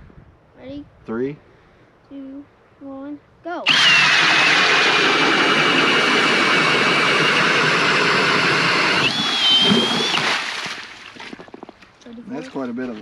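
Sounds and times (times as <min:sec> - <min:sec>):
cordless drill motor whine: 0:03.7 - 0:10.4.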